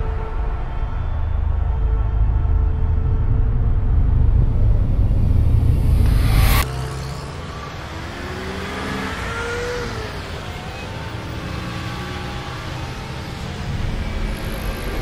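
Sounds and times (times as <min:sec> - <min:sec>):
road traffic rumble: 0:03.5 - 0:15.0
vehicle accelerating: 0:04.0 - 0:15.0.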